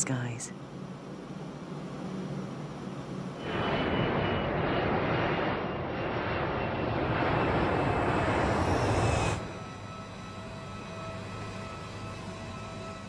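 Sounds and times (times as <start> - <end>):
faint high whine: 0.0 - 13.0
jet engines at takeoff: 0.0 - 13.0.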